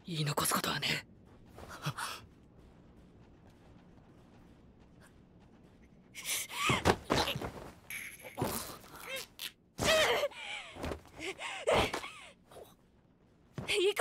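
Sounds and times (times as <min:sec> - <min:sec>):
thuds and blows: 0:06.4 - 0:08.8.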